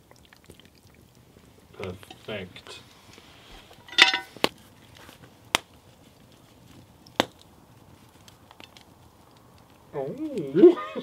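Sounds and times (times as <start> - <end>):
metallic clank: 3.8 - 4.3
metal tapping on metal: 3.9 - 4.3.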